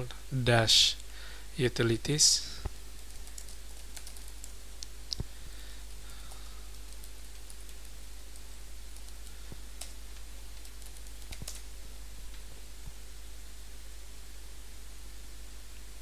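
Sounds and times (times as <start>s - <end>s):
background hiss: 0.0s - 16.0s
computer keyboard clicks: 3.0s - 5.2s, 10.6s - 11.6s.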